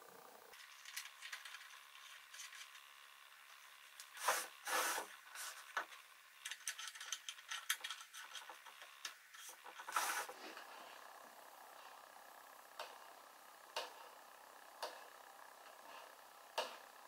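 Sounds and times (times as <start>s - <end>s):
wood rubbing strokes: 4.1s - 5.8s, 8.1s - 11.0s.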